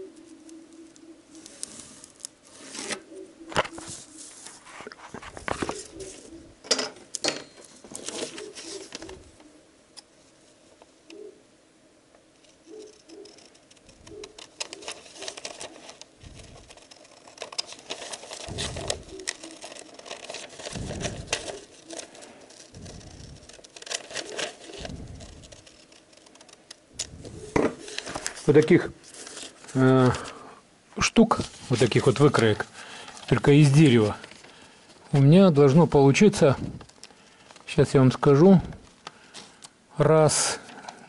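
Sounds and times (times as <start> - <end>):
paper crackling and rustling: 0.2 - 6.4, 7.7 - 9.4, 12.4 - 30.4, 31.1 - 39.7.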